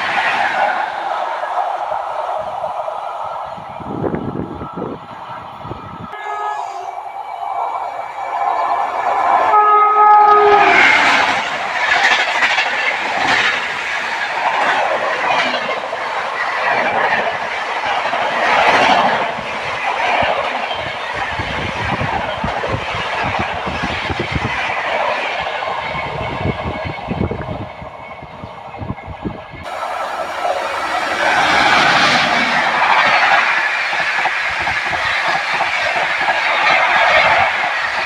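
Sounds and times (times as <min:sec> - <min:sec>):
train rushing past: 0:00.0 - 0:38.0
train horn: 0:06.1 - 0:07.0, 0:09.4 - 0:11.3
wheels clacking over rail joints: 0:10.6 - 0:25.8.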